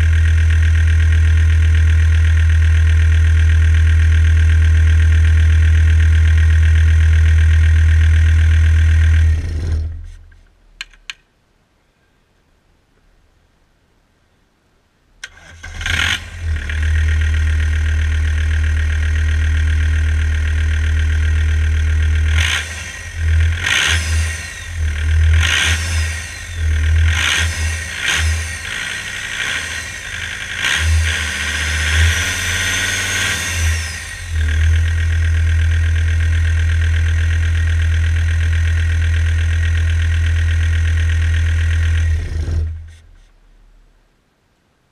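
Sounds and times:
engine whine: 0.0s - 11.0s, 15.2s - 44.0s
diesel engine revving: 3.6s - 10.1s, 15.3s - 43.2s.

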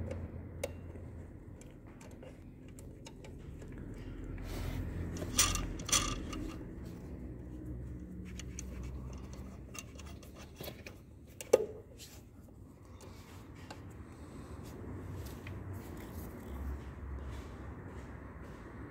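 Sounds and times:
wrench clicking and scraping on metal: 0.0s - 6.9s, 8.1s - 11.6s.

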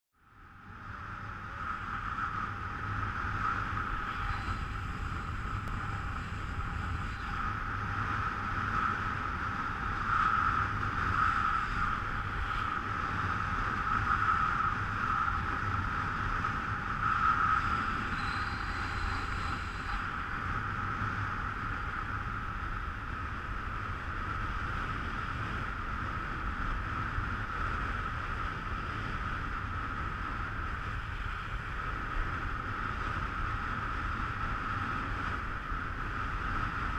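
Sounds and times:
wind rumbling on microphone: 0.1s - 36.9s.

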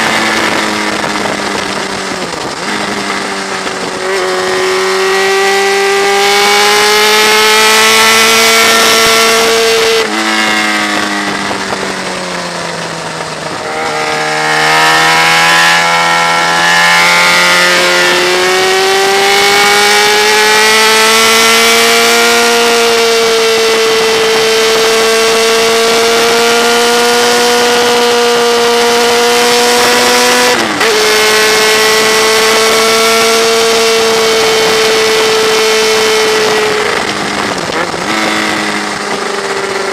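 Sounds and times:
wind rushing: 0.0s - 27.0s
motorcycle engine running hard: 0.0s - 39.9s.

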